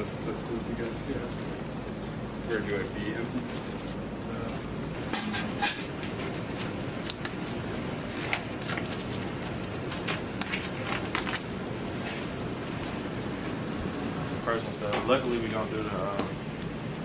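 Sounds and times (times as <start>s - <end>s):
steady background hum: 0.0s - 17.0s
disposable gloves rustling and snapping: 5.9s - 12.2s.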